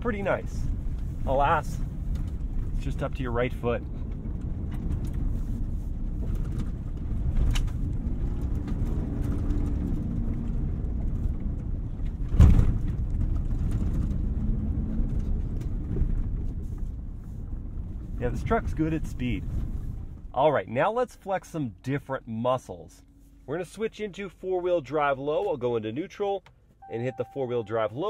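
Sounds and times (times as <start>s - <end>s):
road and tyre rumble: 0.0s - 25.8s.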